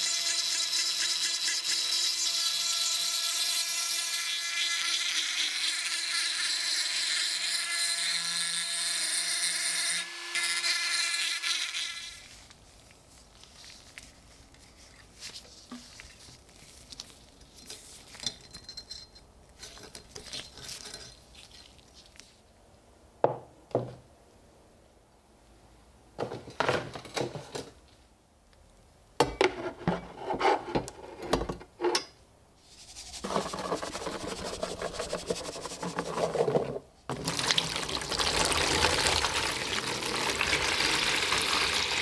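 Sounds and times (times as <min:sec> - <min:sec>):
rotary tool grinding metal: 0:00.0 - 0:12.2
faint scratching: 0:32.6 - 0:36.5.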